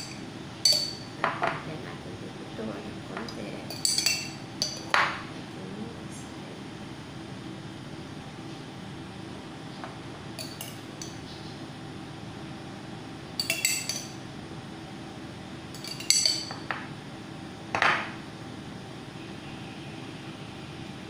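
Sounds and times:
spoon clinking against glass jar: 0.0s - 1.1s, 3.7s - 4.8s, 10.4s - 11.2s, 13.4s - 14.2s, 15.8s - 16.6s.

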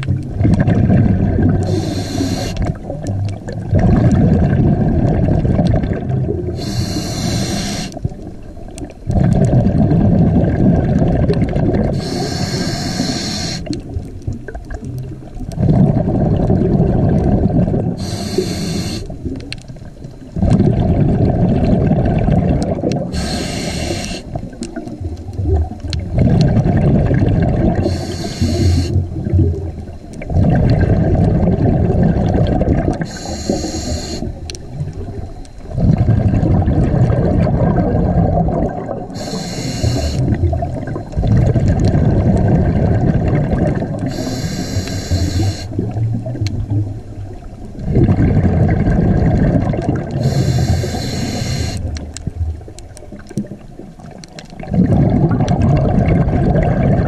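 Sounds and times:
gurgle of exhaled bubbles: 0.0s - 57.0s
regulator hissing inhale: 1.6s - 2.7s, 6.6s - 8.0s, 11.9s - 13.8s, 18.0s - 19.2s, 23.1s - 24.4s, 27.8s - 29.0s, 33.0s - 34.5s, 39.1s - 40.3s, 44.1s - 45.8s, 50.2s - 51.9s.

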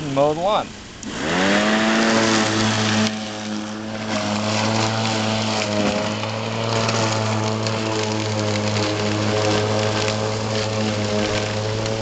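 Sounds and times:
electric mower motor humming: 1.0s - 12.0s.

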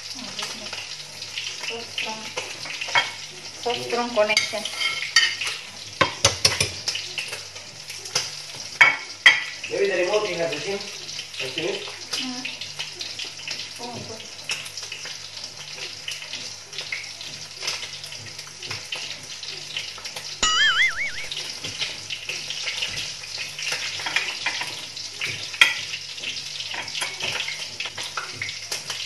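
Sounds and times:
chicken frying in hot oil: 0.0s - 29.0s
wavering whistle-like tone: 20.4s - 21.4s.

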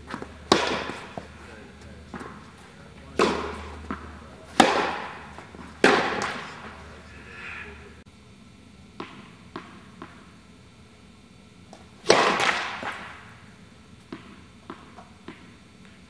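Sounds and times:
tennis ball hit by racket: 0.1s - 1.3s, 3.1s - 6.6s, 12.0s - 13.1s.

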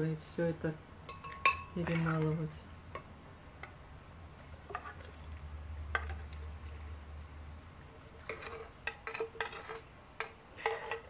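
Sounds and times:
pot clinking against glass jar: 1.1s - 2.3s.

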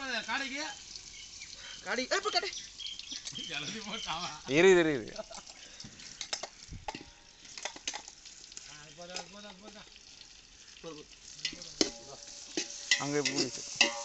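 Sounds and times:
onions sizzling in hot oil: 0.0s - 14.0s
metal ladle scraping pot: 11.4s - 14.0s.

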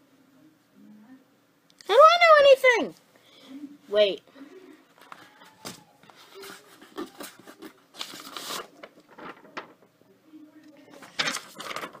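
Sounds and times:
paper rustling: 4.9s - 9.9s, 10.7s - 12.0s.

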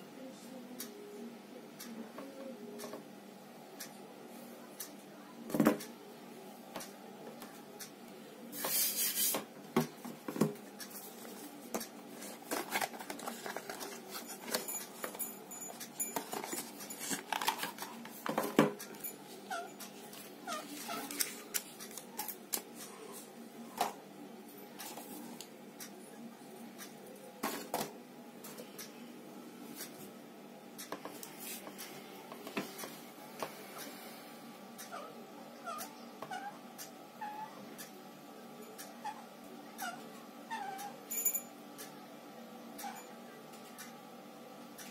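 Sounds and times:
packaging rustling: 12.2s - 15.2s, 16.2s - 18.3s.

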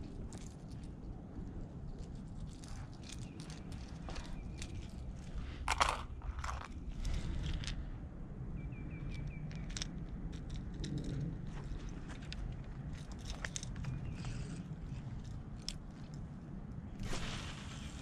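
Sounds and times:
rustling handling noise: 0.0s - 7.8s
steady low rumble: 0.0s - 18.0s.

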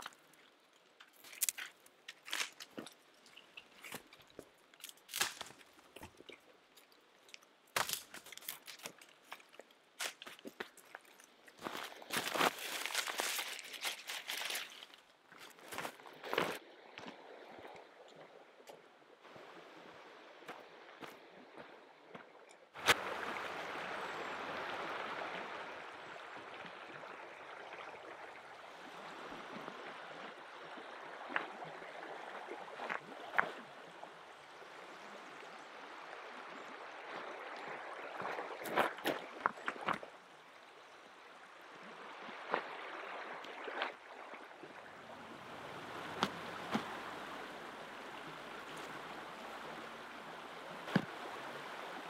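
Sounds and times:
river running over gravel: 0.0s - 17.8s, 22.8s - 52.0s
stones knocking together: 50.9s - 51.1s.

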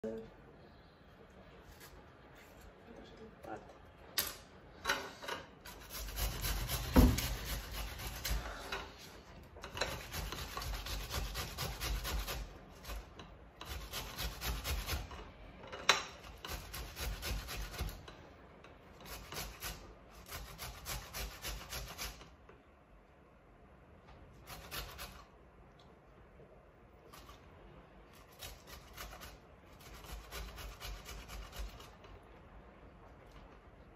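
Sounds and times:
tomatoes rasping on metal grater: 5.7s - 8.6s, 9.6s - 15.2s, 16.2s - 18.1s, 18.9s - 22.2s, 24.4s - 25.3s, 28.1s - 32.0s.

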